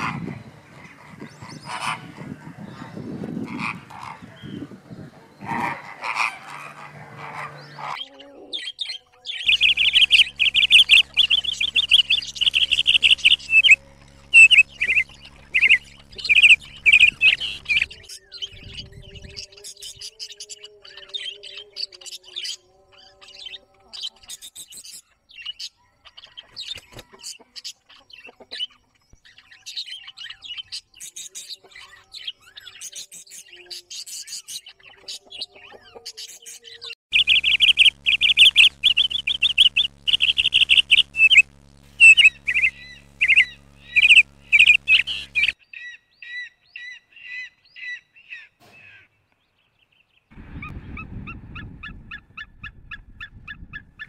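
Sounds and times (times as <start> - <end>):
eagles yelping: 0.0 - 8.6
budgerigars chattering: 0.0 - 19.9, 23.3 - 48.5
cockatoos screeching: 5.3 - 8.8.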